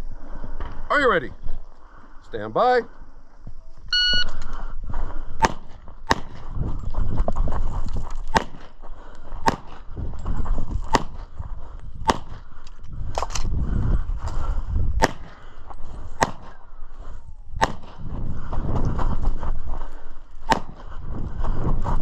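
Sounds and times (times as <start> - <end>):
low rumble of movement: 2.9 - 22.0
pistol shots: 5.4 - 6.4, 8.3 - 8.7, 9.4 - 9.8, 10.9 - 11.2, 12.1 - 12.4, 15.0 - 15.4, 16.2 - 16.6, 17.6 - 18.0, 20.5 - 20.8.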